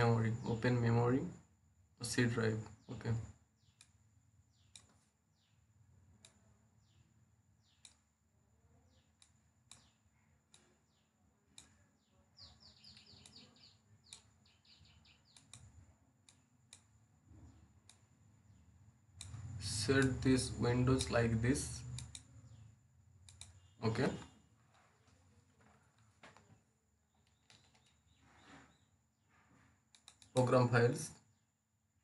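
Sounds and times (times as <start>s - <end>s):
birds chirping: 2.0s - 31.5s
faint computer mouse clicks: 4.7s - 5.0s, 15.3s - 16.9s, 21.8s - 22.3s, 23.2s - 23.6s, 29.9s - 30.5s.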